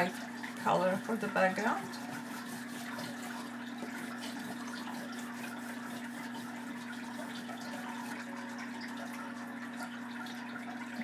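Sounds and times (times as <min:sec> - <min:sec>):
pastel rubbing on paper: 0:00.6 - 0:07.8.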